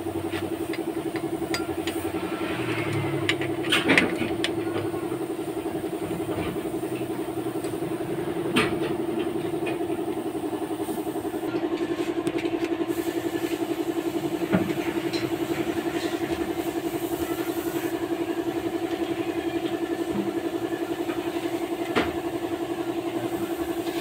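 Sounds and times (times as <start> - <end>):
engine idling: 0.0 - 14.4.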